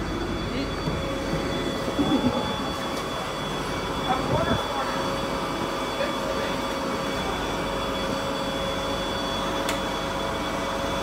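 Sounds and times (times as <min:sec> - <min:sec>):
bus idling hum: 0:00.0 - 0:06.3.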